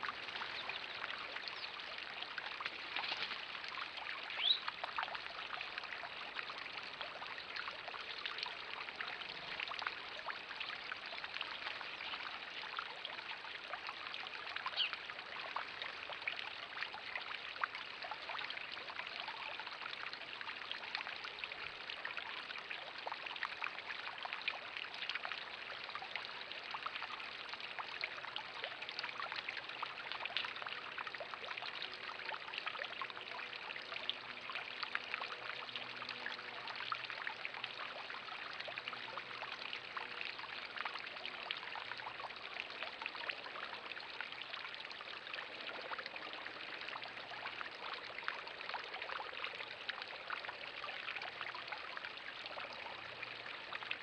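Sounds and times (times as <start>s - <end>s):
water splashing into pond: 0.0s - 54.0s.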